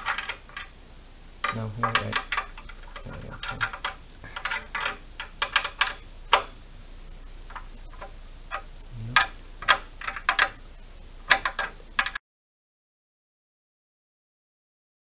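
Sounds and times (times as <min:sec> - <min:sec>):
wrench metallic clicks: 0:01.4 - 0:06.5, 0:11.3 - 0:12.2.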